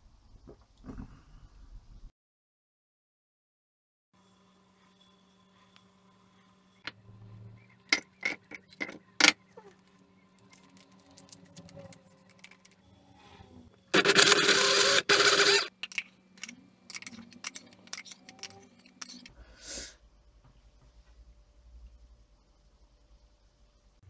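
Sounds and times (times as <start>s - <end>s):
electric blender running: 13.2s - 15.7s.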